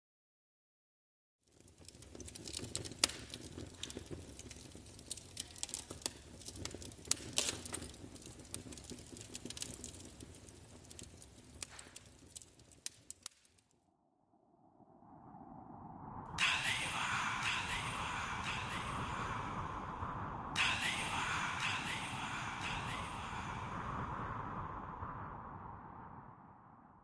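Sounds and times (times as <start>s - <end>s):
faint crackling and popping: 1.4s - 13.8s
low rumble: 13.9s - 27.0s
low swell: 13.9s - 27.0s.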